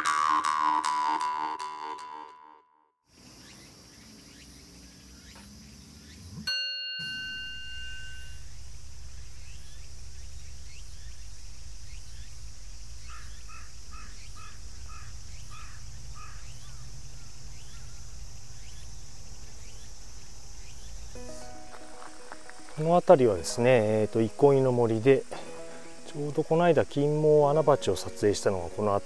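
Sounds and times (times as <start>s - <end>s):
high-pitched insect chorus: 3.1s - 6.4s, 7.0s - 29.0s
bell ding: 6.5s - 8.6s
low rumble: 7.7s - 23.2s.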